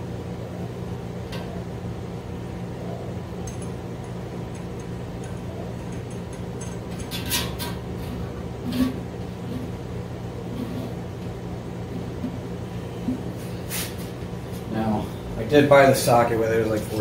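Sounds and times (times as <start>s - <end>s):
steady low hum: 0.0s - 17.0s
metal scrape: 8.6s - 9.7s.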